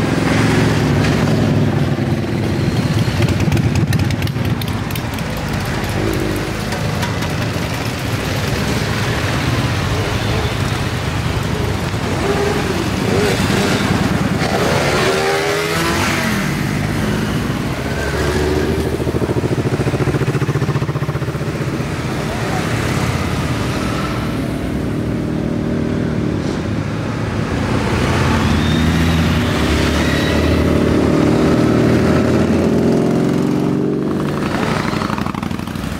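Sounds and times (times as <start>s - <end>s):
motorcycle engine revving: 0.0s - 26.4s, 28.0s - 35.9s
motorcycles riding past: 0.0s - 35.9s.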